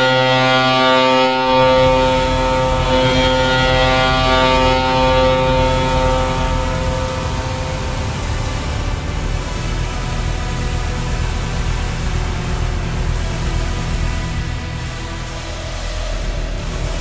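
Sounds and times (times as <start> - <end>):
horn blast: 0.0 - 16.9
low rumble: 1.5 - 17.0.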